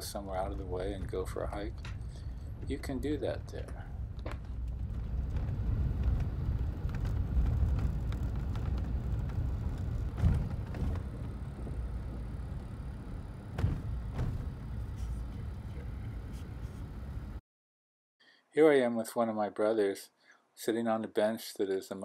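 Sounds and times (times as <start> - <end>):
car road and engine rumble: 0.0 - 17.4
knocks from bumps: 4.2 - 12.3, 13.5 - 14.8.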